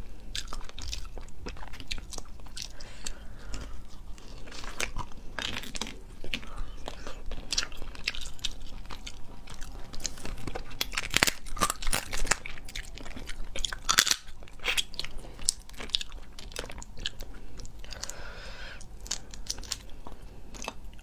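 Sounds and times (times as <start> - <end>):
wet chewing: 0.1 - 21.0
crab shell crunching: 0.2 - 21.0.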